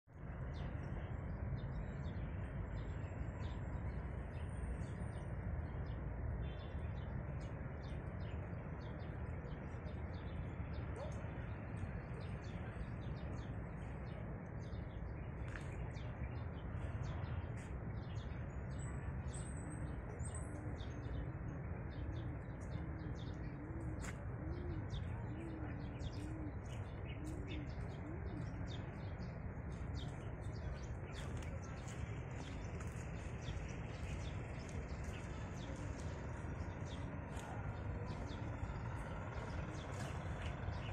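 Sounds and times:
small birds chirping: 0:00.2 - 0:40.9
pigeon cooing: 0:22.0 - 0:28.7.

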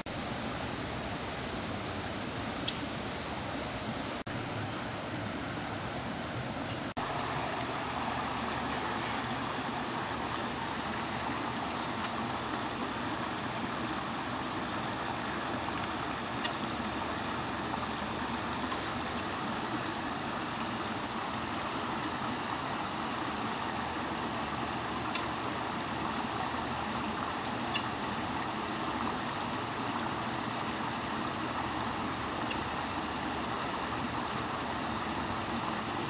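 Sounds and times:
running water rushing: 0:00.0 - 0:36.0
faint high ticks: 0:11.9 - 0:12.8, 0:25.0 - 0:25.4, 0:27.6 - 0:28.0.

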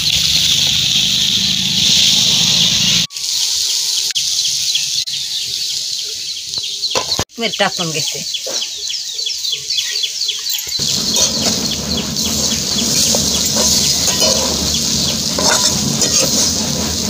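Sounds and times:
birds chirping: 0:04.2 - 0:17.0
metal spatula scraping a wok: 0:10.8 - 0:17.0.

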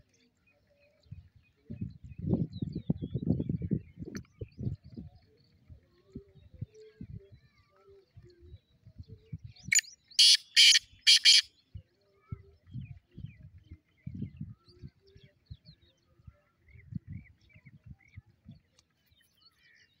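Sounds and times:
small birds chirping: 0:00.0 - 0:20.0
francolin calling: 0:09.7 - 0:11.5.

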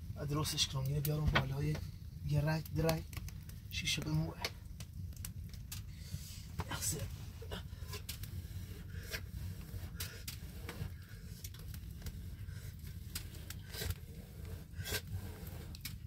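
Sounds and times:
wood fire crackling: 0:00.0 - 0:16.0.

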